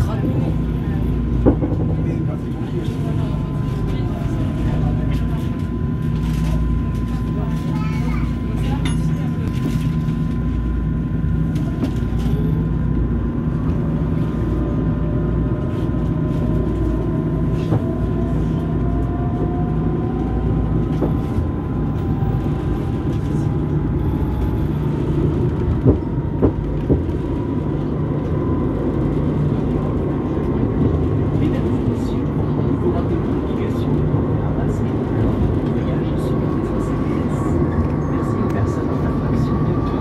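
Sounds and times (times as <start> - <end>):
tram rumble: 0.0 - 40.0.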